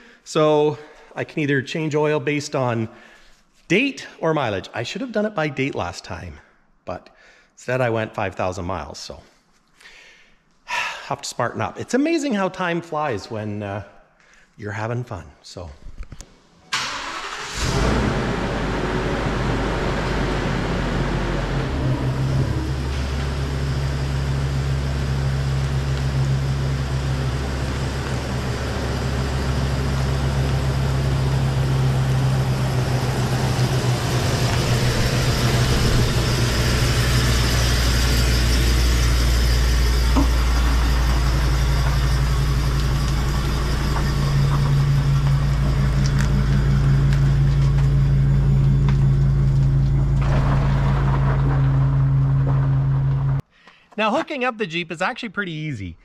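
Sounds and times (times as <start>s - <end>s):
vehicle engine idling: 17.0s - 53.4s.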